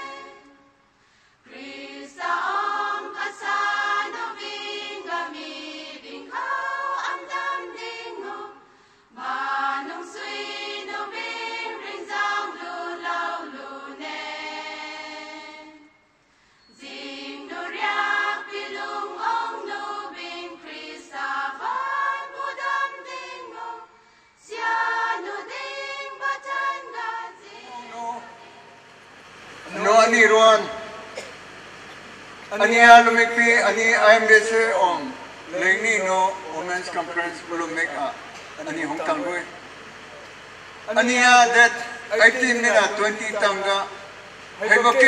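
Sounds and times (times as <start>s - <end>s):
choir singing: 0.0s - 0.6s, 1.5s - 8.6s, 9.2s - 15.9s, 16.8s - 28.9s.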